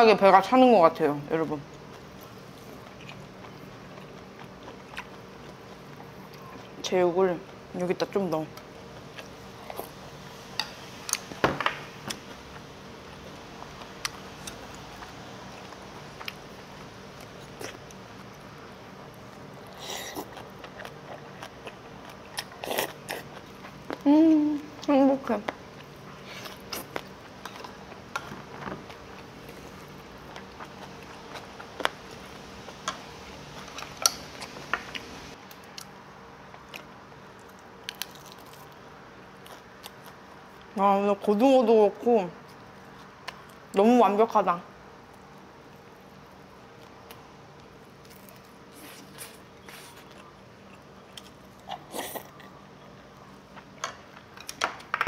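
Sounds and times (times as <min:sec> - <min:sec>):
person chewing: 0:01.8 - 0:06.8, 0:19.1 - 0:24.0, 0:25.8 - 0:32.9, 0:46.8 - 0:53.8.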